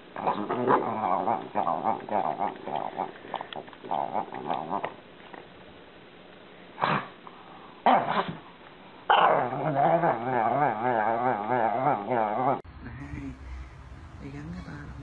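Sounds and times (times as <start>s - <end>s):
dog barking: 7.9s - 8.4s.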